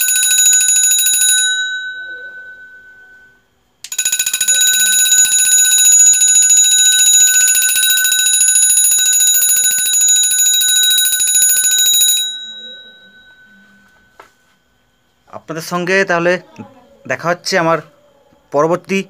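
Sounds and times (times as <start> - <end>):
electric bell ringing: 0.0 - 14.3.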